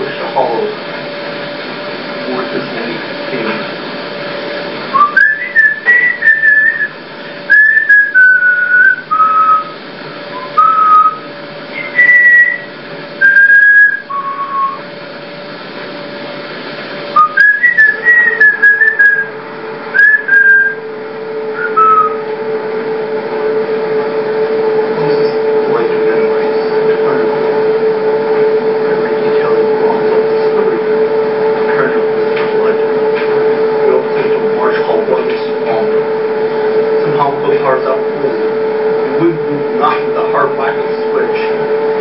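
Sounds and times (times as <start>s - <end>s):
person whistling a slow tune: 4.9s - 14.8s, 17.2s - 19.3s, 19.9s - 20.8s, 21.6s - 22.2s.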